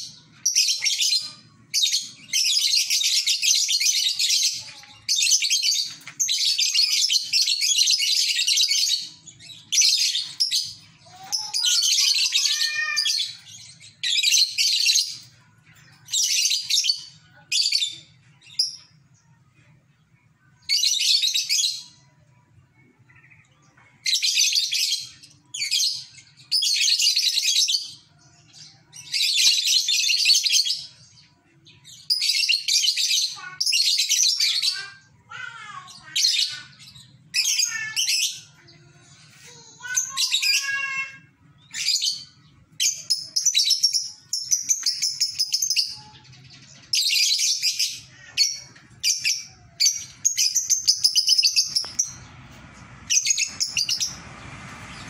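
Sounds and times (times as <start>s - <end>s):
bird gliding chirps: 49.0s - 55.0s.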